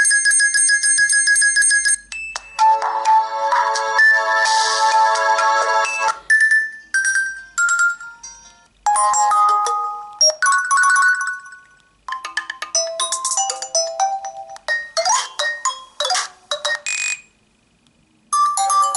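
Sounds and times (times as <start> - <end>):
phone ringtone melodies: 0.0 - 17.2, 18.3 - 18.9.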